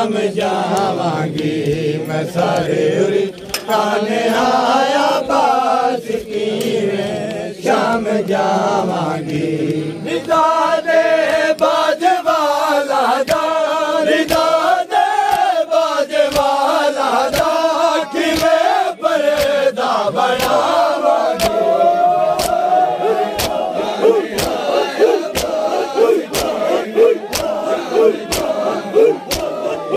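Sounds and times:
crowd of men chanting: 0.0s - 29.9s
sharp beat: 23.4s - 29.6s.

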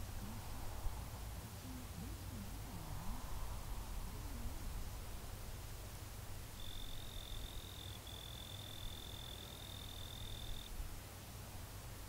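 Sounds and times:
faint low background noise: 0.0s - 12.0s
insect trilling: 6.6s - 10.7s.

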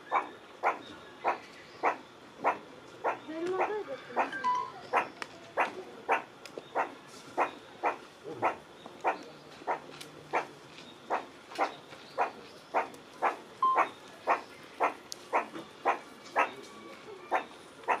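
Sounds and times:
meerkat calling: 0.0s - 10.5s, 11.1s - 18.0s.

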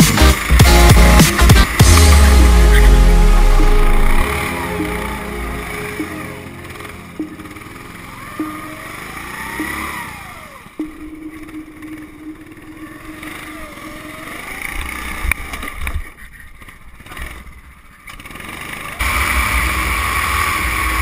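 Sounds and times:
go-kart engine running close: 0.0s - 10.8s, 11.7s - 21.0s
kart engines passing: 0.0s - 10.8s, 11.4s - 21.0s
clicks: 8.3s - 16.0s.

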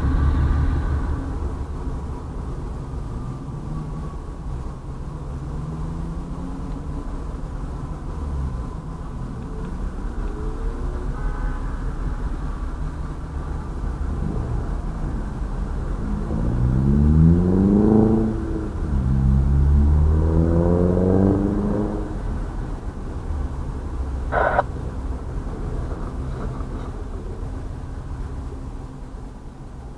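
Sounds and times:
low engine rumble: 0.0s - 11.1s, 20.8s - 29.9s
engine revving: 16.1s - 22.2s
high-pitched toot: 24.3s - 24.6s.

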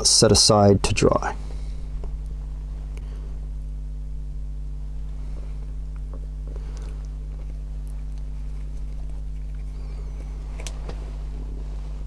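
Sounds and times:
steady low hum: 0.0s - 12.0s
faint clicks and rustles of handling: 4.9s - 12.0s.

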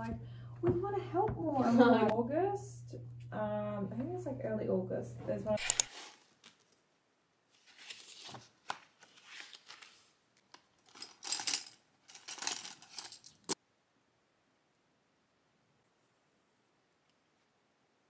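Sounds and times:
pens rattling in pencil case: 10.8s - 13.5s.

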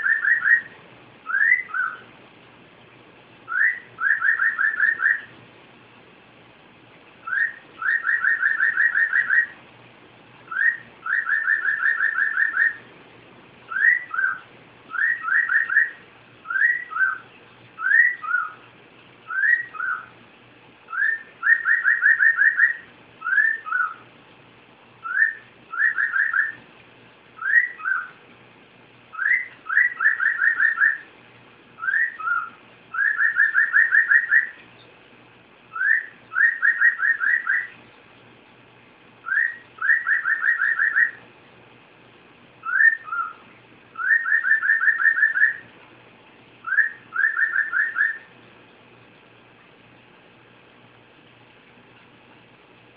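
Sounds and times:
cockatiel whistling a tune: 0.0s - 2.1s, 3.5s - 5.3s, 7.2s - 9.6s, 10.5s - 12.9s, 13.7s - 17.2s, 17.8s - 18.6s, 19.3s - 20.1s, 20.9s - 24.0s, 25.0s - 26.6s, 27.4s - 28.2s, 29.1s - 31.0s, 31.8s - 34.6s, 35.7s - 37.7s, 39.2s - 41.2s, 42.6s - 43.4s, 44.0s - 45.6s, 46.6s - 48.3s.

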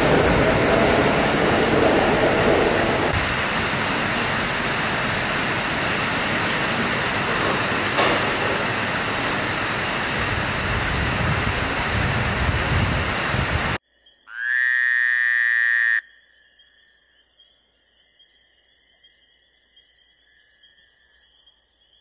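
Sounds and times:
station platform rushing noise: 0.0s - 13.8s.

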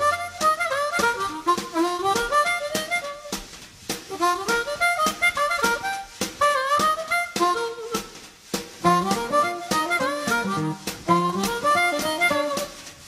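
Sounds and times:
harmonica melody: 0.0s - 13.0s
steady beat: 0.0s - 13.0s.

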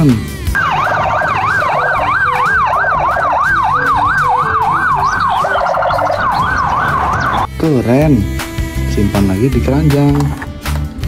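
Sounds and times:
police siren yelp: 0.6s - 7.5s.

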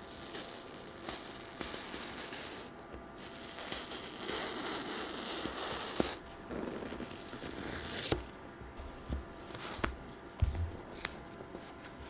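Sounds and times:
knife slicing foam: 0.0s - 6.2s, 6.8s - 8.3s.

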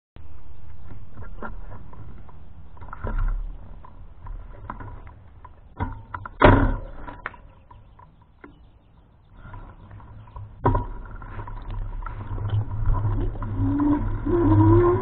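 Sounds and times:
wind rumble on microphone: 9.3s - 15.0s.

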